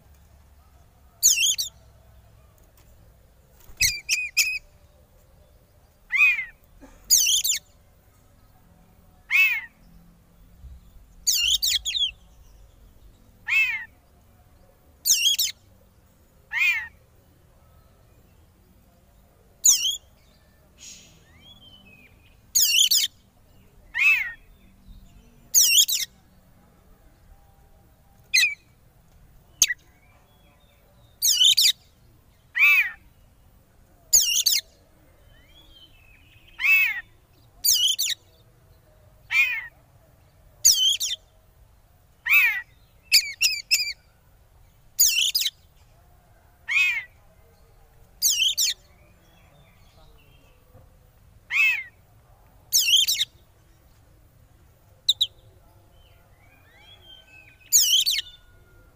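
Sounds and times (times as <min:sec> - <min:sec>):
bird giving harsh calls: 0:39.3 - 0:39.7, 0:51.5 - 0:52.0.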